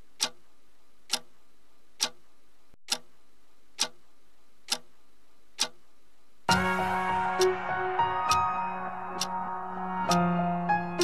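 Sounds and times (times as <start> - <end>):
clock ticking: 0.0 - 7.7, 8.3 - 8.5, 9.1 - 9.4, 10.0 - 11.0.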